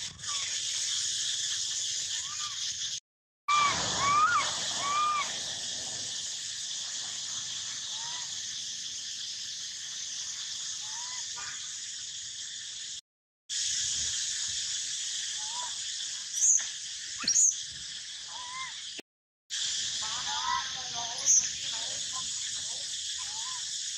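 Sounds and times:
insects buzzing: 0.0 - 23.9
monkey sharp loud calls: 2.0 - 2.7, 3.5 - 5.4, 7.8 - 8.4, 10.8 - 11.8, 15.4 - 15.8, 17.2 - 17.6, 18.2 - 18.8, 23.2 - 23.7.

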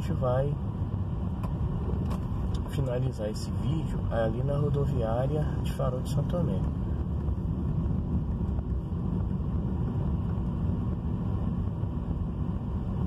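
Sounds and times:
car engine and tyres rumbling: 0.0 - 13.0.

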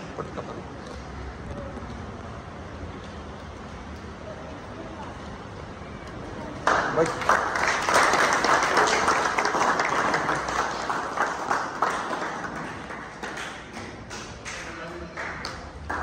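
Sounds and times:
group applause: 6.5 - 16.0.

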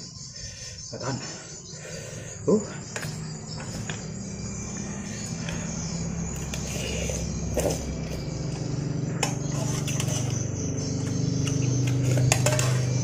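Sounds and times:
low droning hum: 0.0 - 13.0
metal spoon scraping pot: 4.9 - 8.3, 9.2 - 13.0.

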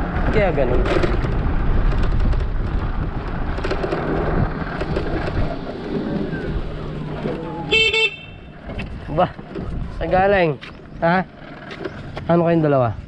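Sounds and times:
wind rumbling on microphone: 0.0 - 12.3
road noise: 0.0 - 13.0
short horn beep: 7.7 - 8.4.

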